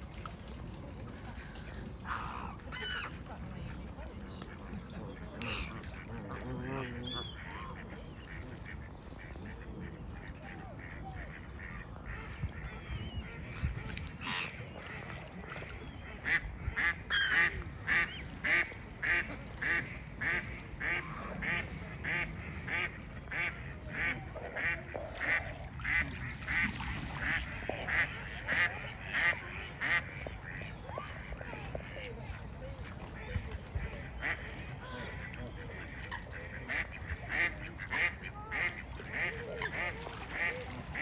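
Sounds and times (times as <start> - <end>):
waterfowl calls: 2.0 - 3.2, 4.6 - 32.1, 32.9 - 41.0
duck quacking: 16.2 - 31.2, 34.1 - 40.7.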